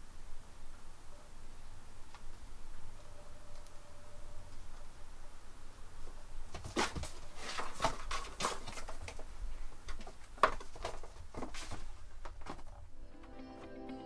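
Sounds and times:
cat paws scratching cardboard: 6.4 - 12.8.

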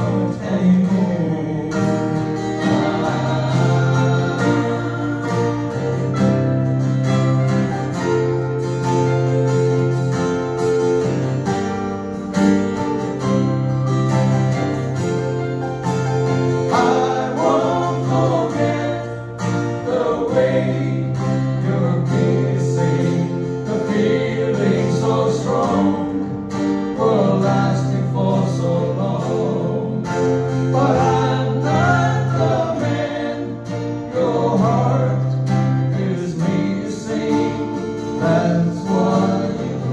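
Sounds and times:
person singing: 0.0 - 5.9
band playing acoustic guitars and keyboard: 0.0 - 39.9.

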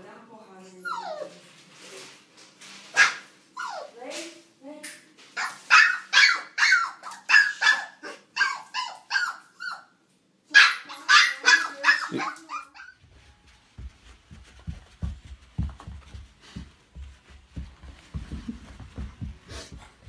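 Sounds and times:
puppy barking: 3.0 - 3.9, 5.4 - 9.9, 10.5 - 13.0
faint low thuds: 13.0 - 20.0.

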